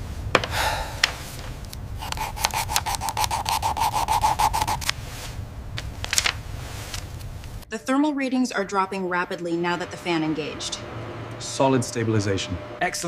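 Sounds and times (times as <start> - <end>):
pencil scratching on paper: 2.0 - 5.0
low steady rumble: 4.8 - 13.0.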